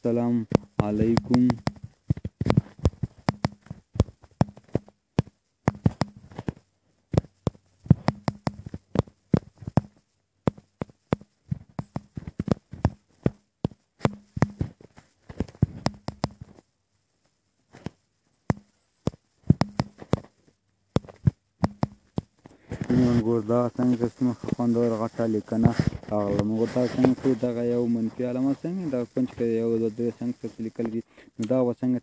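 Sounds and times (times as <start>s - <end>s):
touchscreen typing taps: 0.5s - 14.8s, 15.4s - 16.6s, 18.5s - 20.3s, 21.0s - 23.2s.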